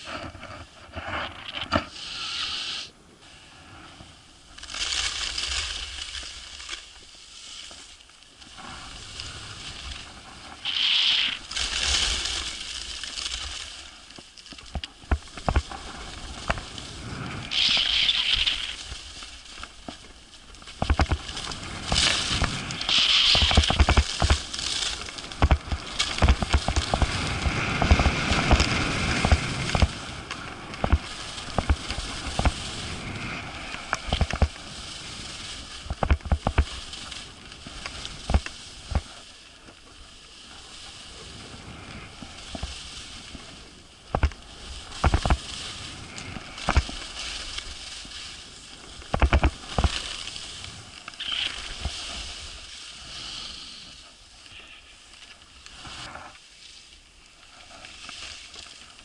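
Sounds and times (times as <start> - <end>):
skis scraping over snow: 0.0 - 59.0
wind on microphone: 20.8 - 39.2.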